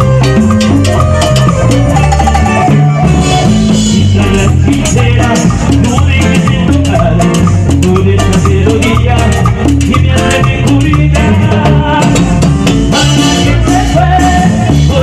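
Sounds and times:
timbales and shaker percussion: 0.0 - 11.0
bass line: 0.0 - 15.0
keyboard melody: 0.0 - 15.0.

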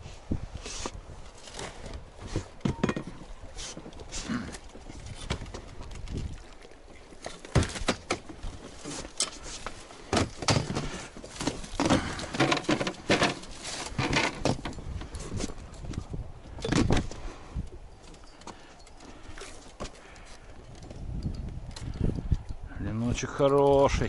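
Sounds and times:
landing net knocking and rustling: 7.4 - 9.4, 10.1 - 15.1.

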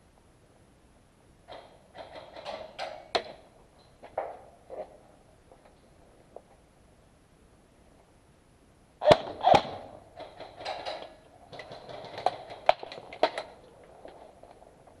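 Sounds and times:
loud sharp cracks: 9.0 - 13.5.

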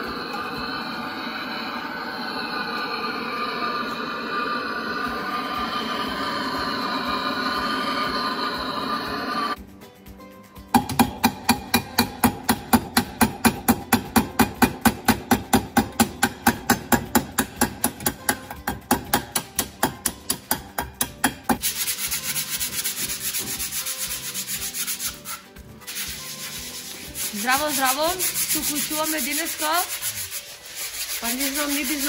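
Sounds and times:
file rasping on metal propeller: 0.0 - 9.6, 21.6 - 32.0
hand-sanding hiss: 21.6 - 32.0.

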